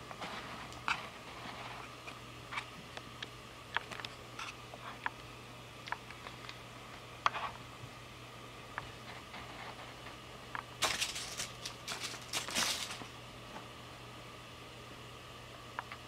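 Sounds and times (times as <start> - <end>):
low steady hum: 0.0 - 16.0
cat pawing clicks and rustles: 10.8 - 13.2.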